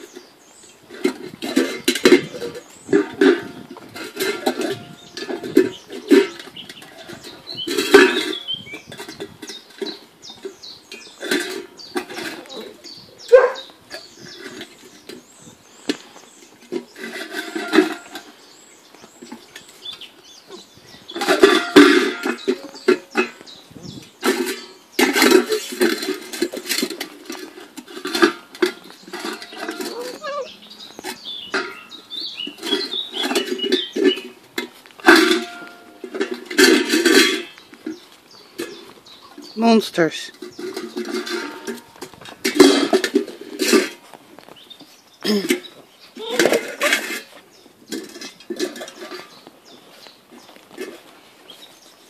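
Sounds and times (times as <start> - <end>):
bowl clattering: 0.0 - 51.8
metal bowls clinking and scraping: 0.0 - 52.0
puppies squeaking: 29.3 - 34.2.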